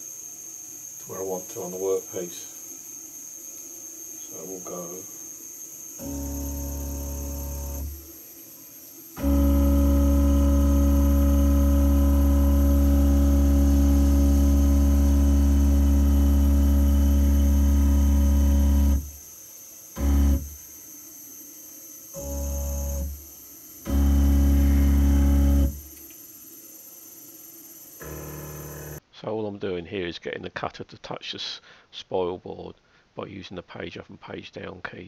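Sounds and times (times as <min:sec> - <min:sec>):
stepper motors humming: 0:05.9 - 0:19.2, 0:20.0 - 0:20.8, 0:22.1 - 0:29.0.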